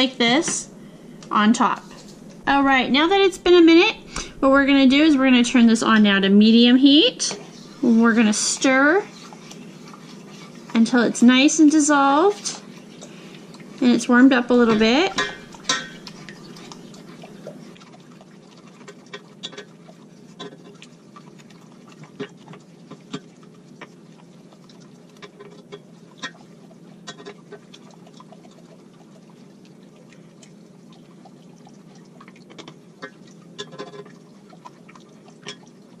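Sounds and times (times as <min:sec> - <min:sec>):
low hum: 0:00.0 - 0:17.8
liquid swishing: 0:00.0 - 0:36.0
spoon knocking and scraping pan: 0:14.5 - 0:16.5.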